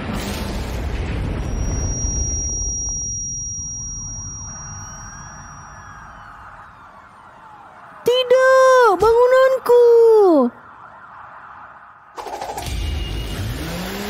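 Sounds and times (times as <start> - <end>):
high ringing tone: 1.2 - 6.8
faint rising and falling tones: 1.3 - 8.0.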